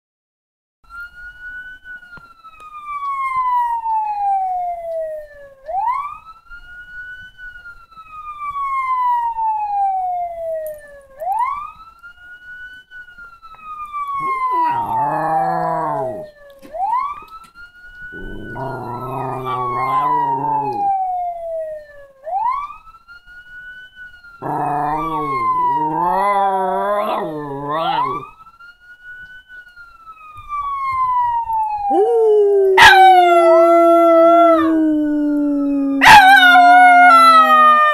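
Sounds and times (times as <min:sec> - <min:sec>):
siren wailing: 0:02.8 - 0:06.4, 0:08.2 - 0:11.8, 0:13.5 - 0:23.0, 0:23.6 - 0:28.5, 0:30.1 - 0:37.9
dog howling: 0:14.2 - 0:16.4, 0:18.2 - 0:21.5, 0:24.4 - 0:28.3, 0:31.9 - 0:37.9.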